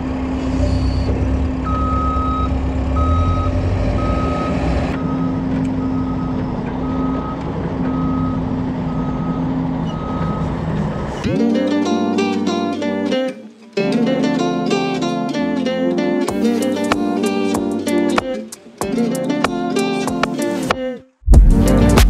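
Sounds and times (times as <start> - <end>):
engine humming: 0.0 - 13.2
reversing alarm beeping: 0.5 - 10.6.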